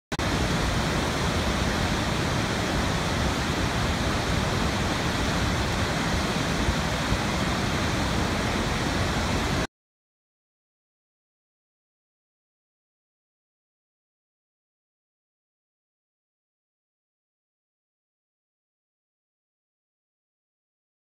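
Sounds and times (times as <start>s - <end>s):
waterfall rushing: 0.1s - 9.7s.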